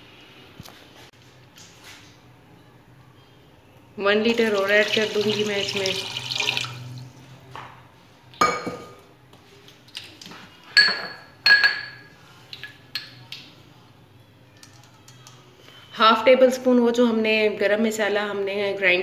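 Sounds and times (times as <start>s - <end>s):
water trickling into pot: 4.3s - 7.1s
kitchenware clinking: 8.4s - 9.0s, 10.7s - 13.2s.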